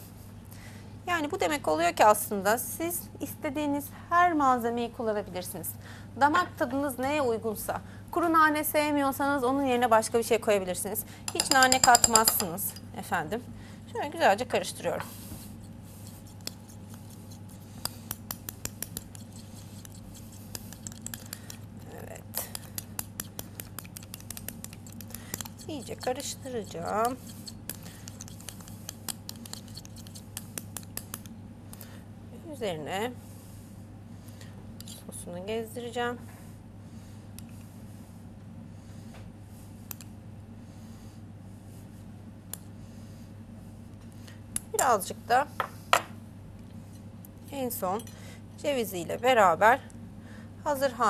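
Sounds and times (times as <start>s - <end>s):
steady low hum: 0.0s - 51.0s
spoon clicking against glass bowl: 11.3s - 12.5s.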